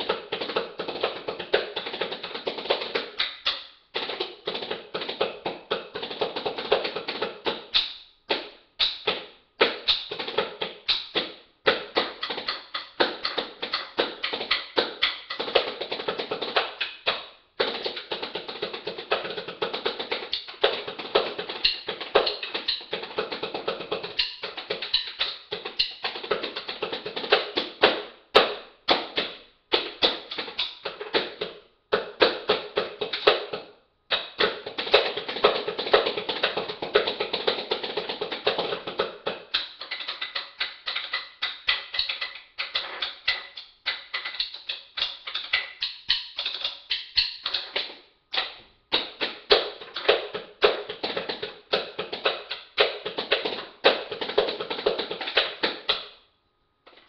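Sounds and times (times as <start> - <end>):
sticks drumming on metal tins: 0.0 - 56.2
sticks drumming on glass jar: 9.7 - 27.7, 32.5 - 56.1.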